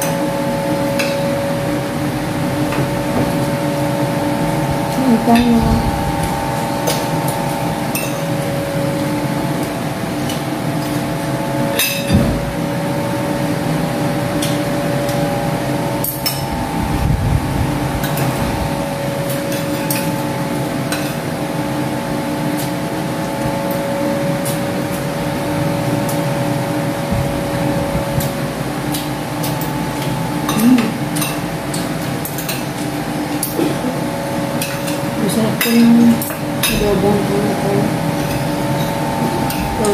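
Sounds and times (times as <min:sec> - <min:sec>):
steady hum of held tones: 0:00.0 - 0:39.9
cutlery clinking on plates: 0:30.5 - 0:32.7.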